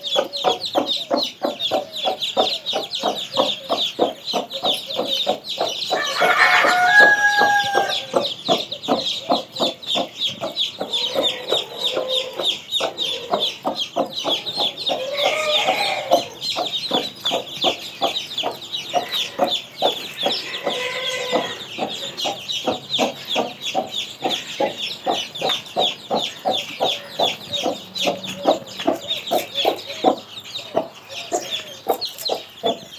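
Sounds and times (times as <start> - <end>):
chicks peeping: 0.0 - 32.9
hen clucking: 0.0 - 32.9
loud chicken calls: 5.8 - 8.3, 10.8 - 16.6, 18.9 - 22.4.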